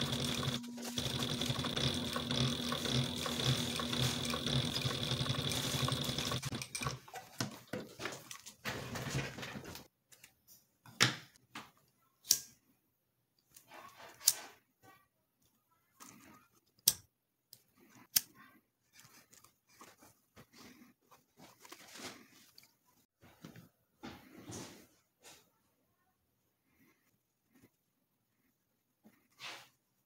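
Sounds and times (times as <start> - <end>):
scissors snipping thread: 16.0 - 18.5.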